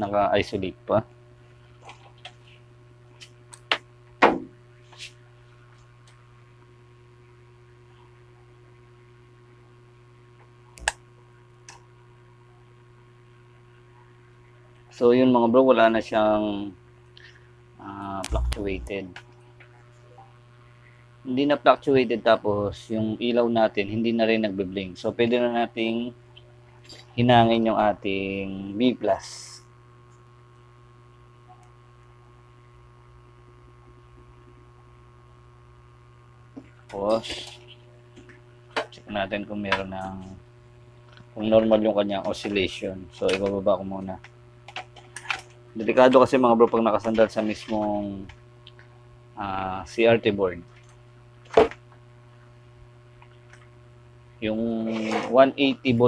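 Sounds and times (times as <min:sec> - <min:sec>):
low electrical hum: 0:00.0 - 0:56.0
sharp click: 0:18.2 - 0:19.0.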